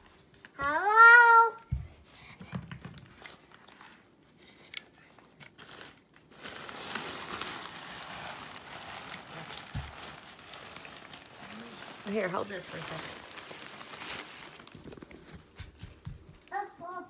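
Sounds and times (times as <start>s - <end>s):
packaging rustling and crinkling: 2.6s - 4.3s, 5.0s - 16.5s.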